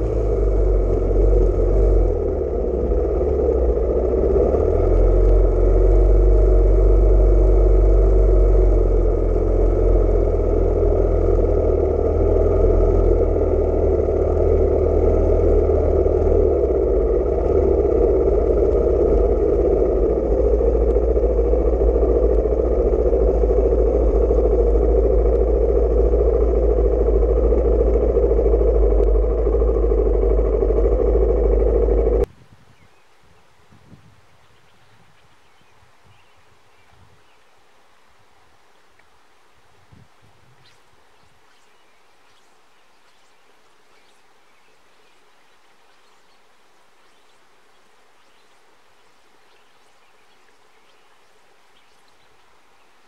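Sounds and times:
motorcycle engine running: 0.0 - 32.3.

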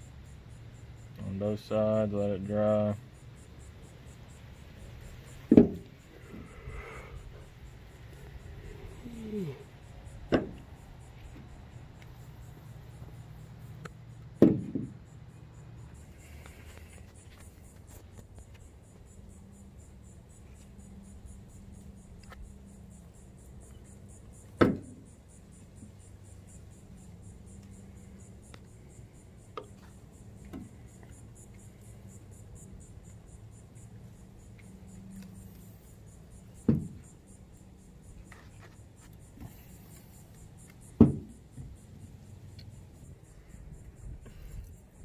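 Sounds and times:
faint steady hum: 0.0 - 45.0.

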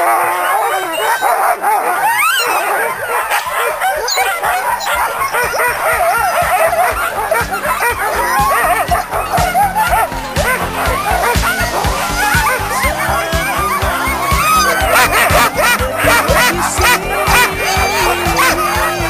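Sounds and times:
dogs barking and yipping: 0.0 - 19.0.

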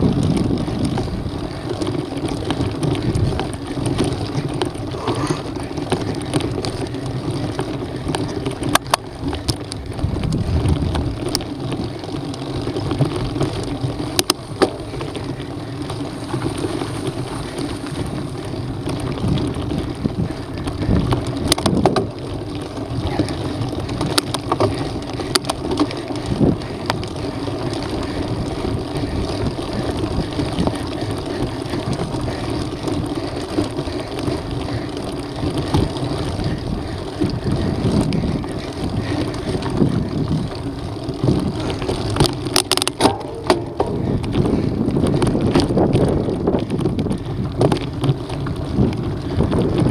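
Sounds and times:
bike rattling over stones: 0.0 - 49.9
tyres rumbling on dirt: 0.0 - 49.9
wind on microphone: 9.3 - 11.4, 35.5 - 49.9.

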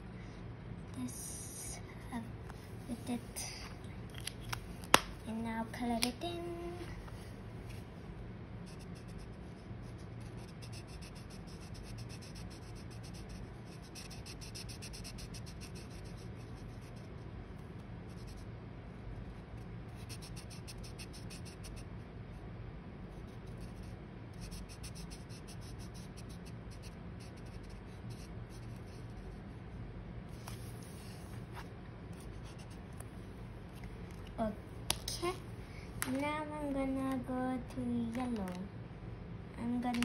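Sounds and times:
marker scratching on paper: 8.6 - 17.2, 18.1 - 18.5, 19.9 - 21.9, 23.1 - 29.5, 30.4 - 32.8.

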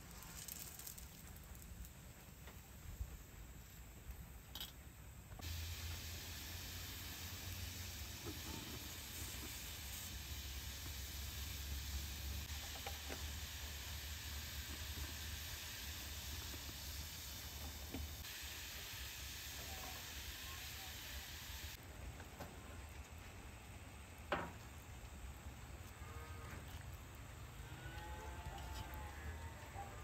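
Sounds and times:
oil crackles: 0.0 - 2.0
hot oil sizzling in a pan: 5.4 - 21.8.

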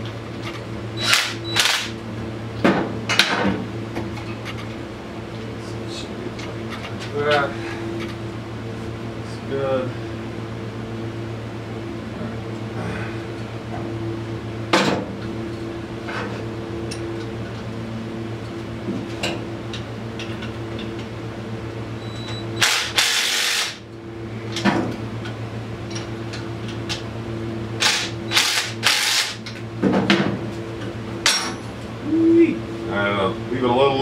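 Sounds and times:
fan hum: 0.0 - 34.0
impact wrench bursts: 1.0 - 1.9, 22.6 - 23.8, 27.8 - 29.4.

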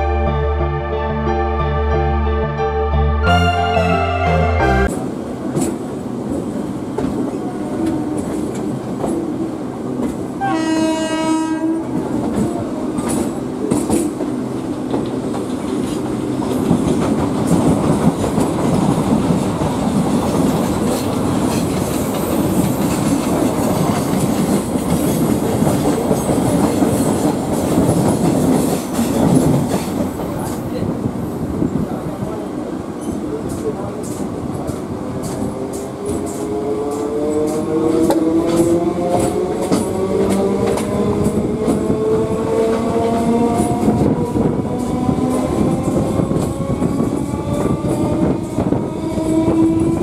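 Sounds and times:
train horn: 3.2 - 5.0, 10.4 - 12.0
train rolling on track: 3.3 - 50.0.

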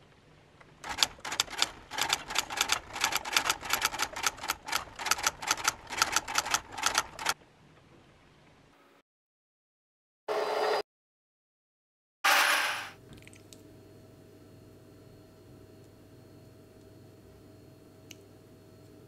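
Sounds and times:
typewriter keys clacking: 0.8 - 7.4.

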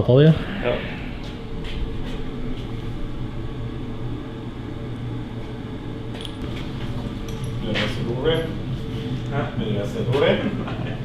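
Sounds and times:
low mechanical hum: 0.0 - 11.0.

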